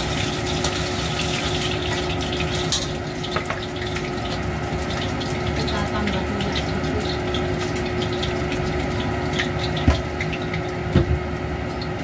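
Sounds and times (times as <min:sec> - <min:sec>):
hot oil hissing and crackling: 0:00.0 - 0:12.0.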